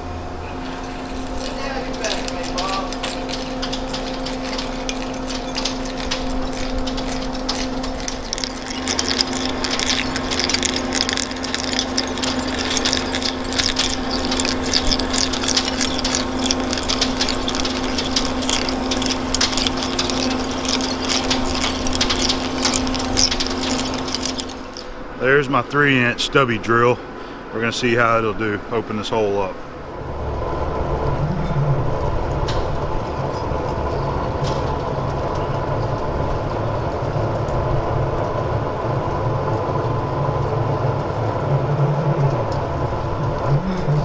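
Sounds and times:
lathe humming: 0:00.0 - 0:25.2
crackle of breaking metal chips: 0:00.5 - 0:25.2, 0:32.3 - 0:41.5
deeper rumble: 0:28.6 - 0:44.0.

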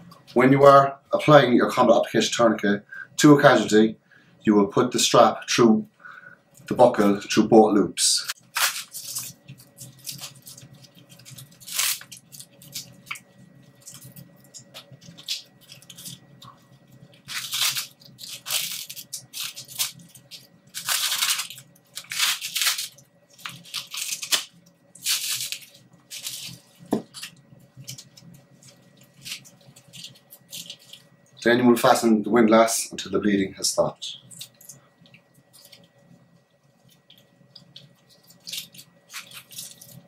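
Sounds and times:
velcro strap ripping: 0:08.3 - 0:13.2, 0:17.2 - 0:28.1, 0:38.2 - 0:40.0.

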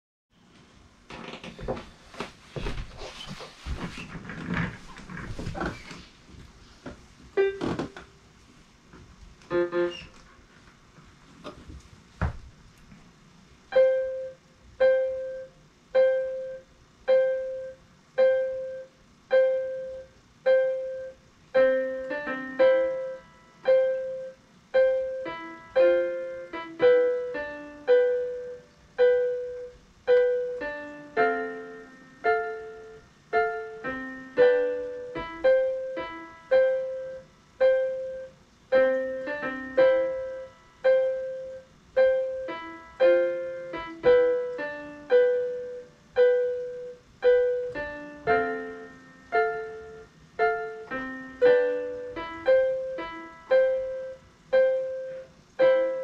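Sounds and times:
electronic keyboard piano notes: 0:07.4 - 0:08.1, 0:09.5 - 0:10.2, 0:13.7 - 0:56.0.

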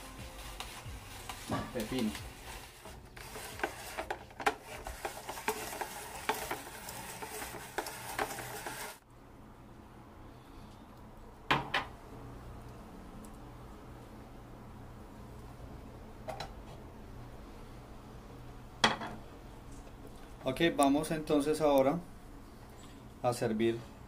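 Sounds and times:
spiralizer crunching vegetables: 0:00.0 - 0:09.0.

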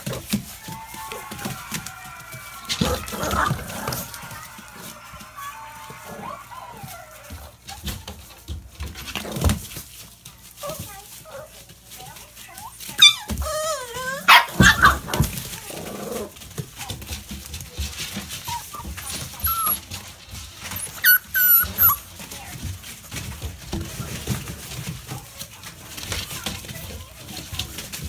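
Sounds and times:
paws scuffling on tarp: 0:00.0 - 0:28.0
puppies yipping and squealing: 0:12.5 - 0:15.4, 0:18.1 - 0:22.3.

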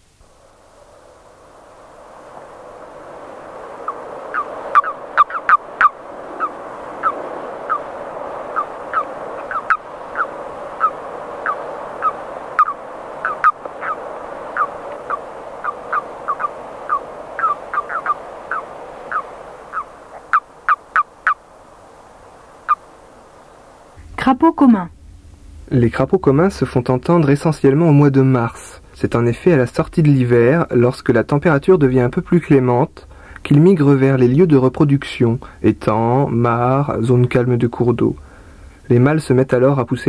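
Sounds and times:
sharp downward-sliding frog calls: 0:00.0 - 0:24.0
frog chorus hum: 0:00.0 - 0:40.0.

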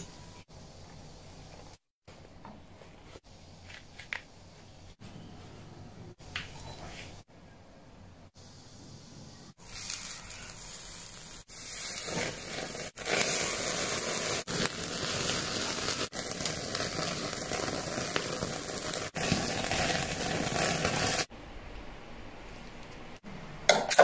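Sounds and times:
fat flaring in flames: 0:09.6 - 0:21.3
meat sizzling on a grill: 0:09.6 - 0:21.3.

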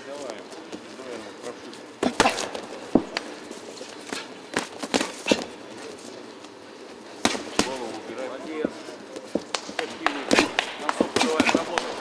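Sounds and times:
boxing gloves smacking: 0:04.0 - 0:05.6, 0:07.2 - 0:08.0, 0:09.1 - 0:12.0.

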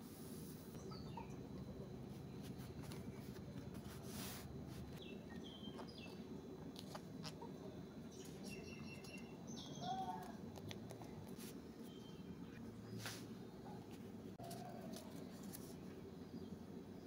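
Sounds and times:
bird chirps: 0:05.0 - 0:06.2, 0:08.1 - 0:10.3.

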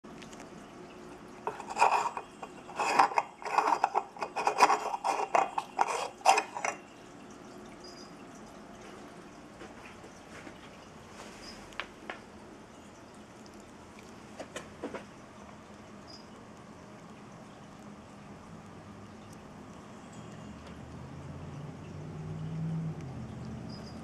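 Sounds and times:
light bulb scraping and clicking in socket: 0:01.5 - 0:06.8.

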